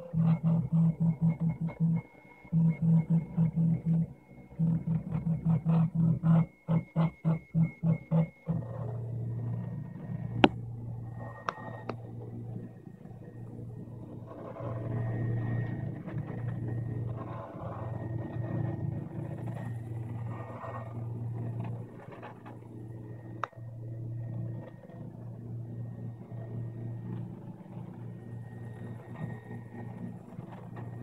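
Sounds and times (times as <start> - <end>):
faint high whine: 6.5 - 31.0.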